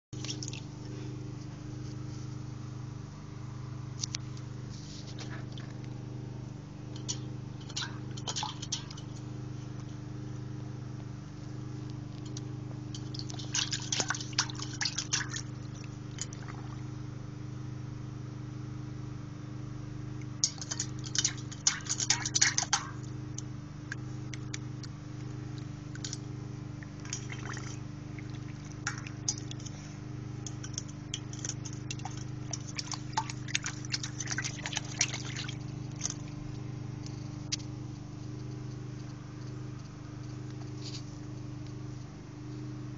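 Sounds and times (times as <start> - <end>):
steady low hum: 0.1 - 42.9
dog splashing water in bowl: 0.2 - 0.7, 7.6 - 9.2, 13.0 - 16.6, 20.4 - 23.1, 26.8 - 29.8, 30.5 - 36.4.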